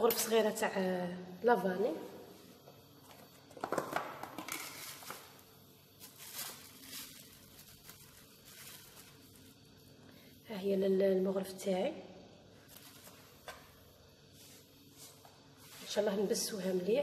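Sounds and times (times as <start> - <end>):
plastic packaging crinkling: 6.0 - 9.6.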